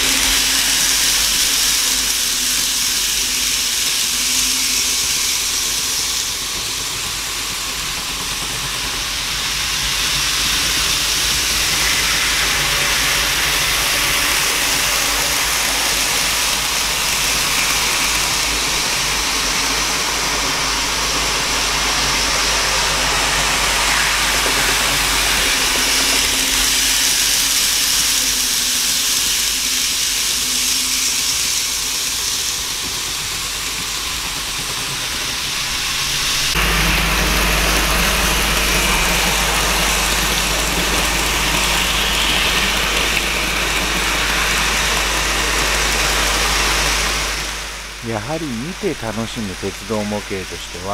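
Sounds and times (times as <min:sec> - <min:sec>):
model trains running on track: 0:00.0 - 0:50.9.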